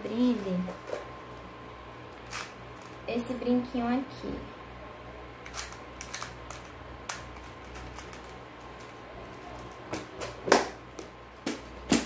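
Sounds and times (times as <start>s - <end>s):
small items clicking and knocking: 5.5s - 9.0s.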